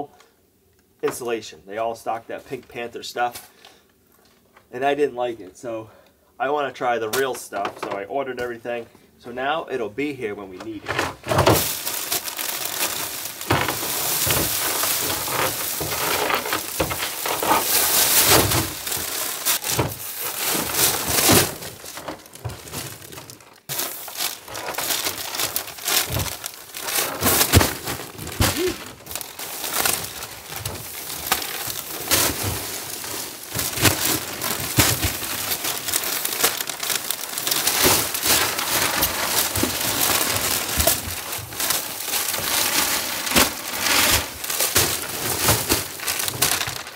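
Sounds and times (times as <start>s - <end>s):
plastic sheeting crinkling: 10.7s - 46.9s.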